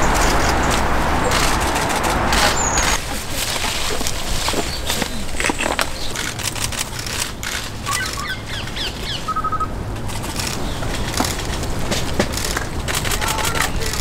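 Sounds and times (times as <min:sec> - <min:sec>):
even pips: 0:00.0 - 0:08.4
high falling chirps: 0:00.0 - 0:09.8
leaves and branches rustling: 0:00.0 - 0:14.0
steady low rumble: 0:00.0 - 0:14.0.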